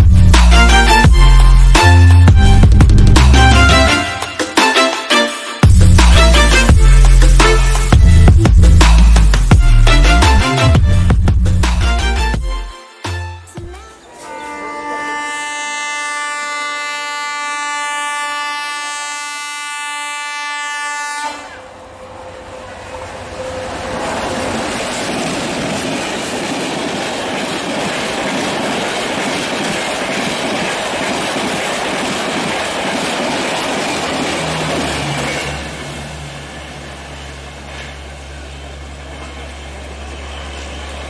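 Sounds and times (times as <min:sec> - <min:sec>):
train passing with wheel clatter: 0:00.0 - 0:12.4, 0:20.0 - 0:41.0
locomotive horn blast: 0:00.5 - 0:08.3, 0:13.9 - 0:24.6.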